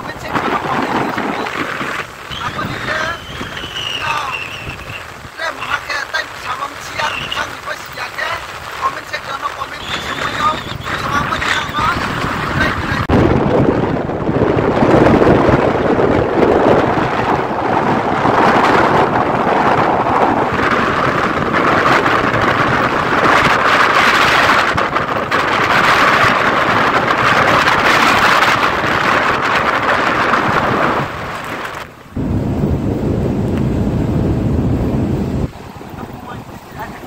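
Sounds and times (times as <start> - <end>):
road and engine noise: 0.0 - 37.0
wind buffeting microphone: 0.0 - 37.0.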